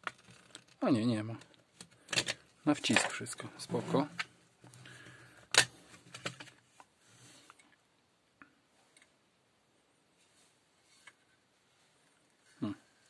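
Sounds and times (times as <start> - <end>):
soft handling rustle: 10.0 - 13.0.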